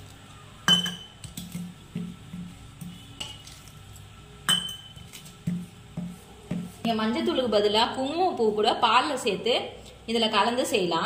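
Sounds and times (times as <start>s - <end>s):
mixing bowl clink: 0.6s - 3.7s, 4.4s - 7.0s.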